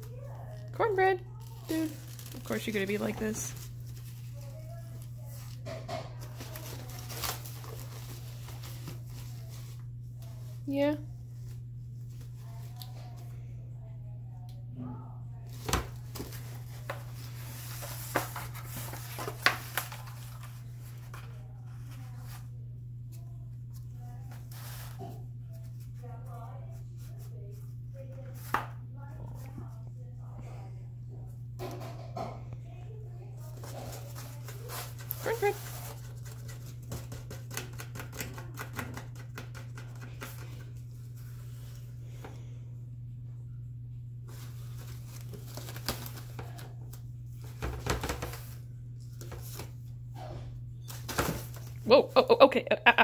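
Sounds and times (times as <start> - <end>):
steady low hum: 0.0 - 53.0
cat scratching cardboard: 33.5 - 40.8.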